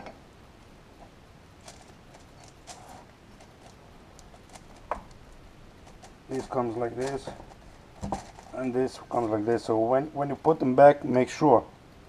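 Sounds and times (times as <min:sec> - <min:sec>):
clicks and knocks of parts handled: 0:05.8 - 0:08.6.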